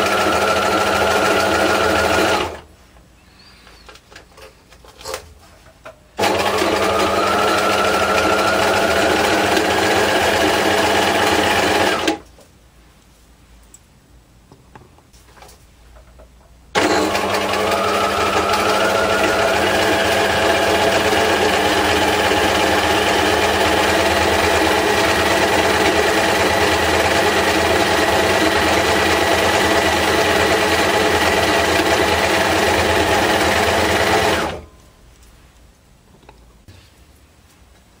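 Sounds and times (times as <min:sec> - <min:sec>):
electric sewing machine running: 0:00.0 - 0:02.6, 0:06.2 - 0:12.2, 0:16.8 - 0:34.6.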